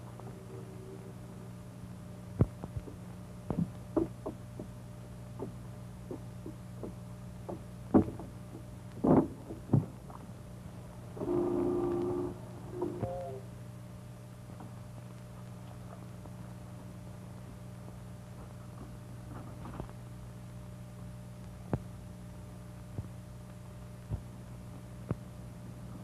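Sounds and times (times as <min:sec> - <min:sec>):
steady low hum: 0:00.0 - 0:26.0
wooden knocks in rowboat: 0:02.4 - 0:04.8, 0:05.4 - 0:10.2.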